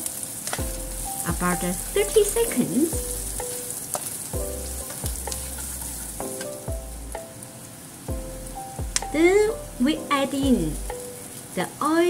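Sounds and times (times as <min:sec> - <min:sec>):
food sizzling in hot oil: 0:00.0 - 0:12.0
wooden spatula stirring in pan: 0:00.5 - 0:06.7.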